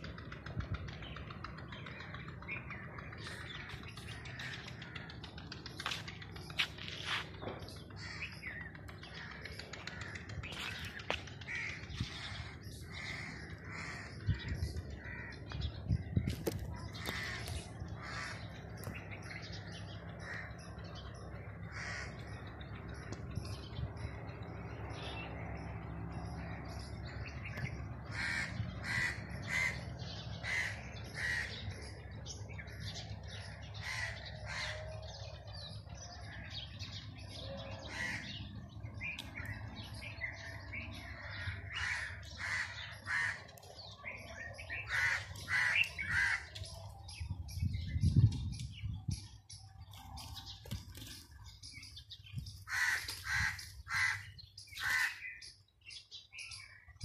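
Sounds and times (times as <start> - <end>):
steady low rumble: 0.0 - 54.4
crows cawing: 3.2 - 6.0, 7.9 - 20.7, 21.6 - 22.4, 28.0 - 31.9, 32.6 - 35.0, 37.8 - 38.6, 40.2 - 46.8, 52.6 - 55.5.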